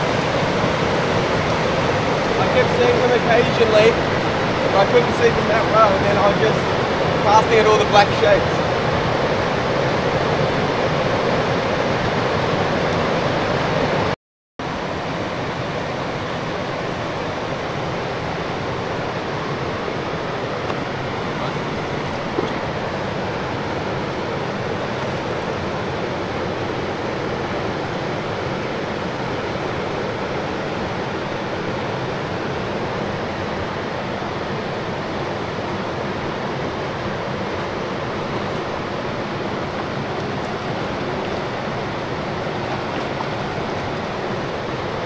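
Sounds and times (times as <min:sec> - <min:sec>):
river rushing over stones: 0:00.0 - 0:45.0.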